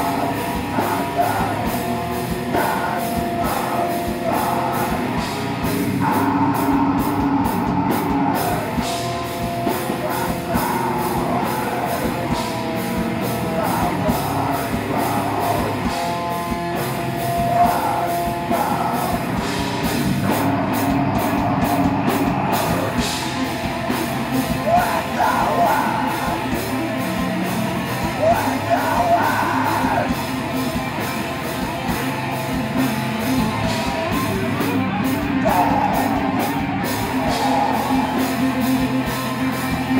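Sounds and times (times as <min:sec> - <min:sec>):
bass guitar: 0:00.0 - 0:39.9
drum kit: 0:00.0 - 0:39.9
electric guitar: 0:00.0 - 0:39.9
screamed vocals: 0:24.6 - 0:26.5, 0:28.2 - 0:30.2, 0:35.3 - 0:38.9.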